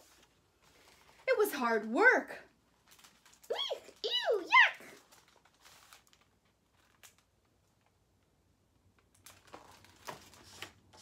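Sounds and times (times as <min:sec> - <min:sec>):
book pages rustling: 0:00.0 - 0:01.3, 0:02.8 - 0:08.0, 0:09.1 - 0:11.0.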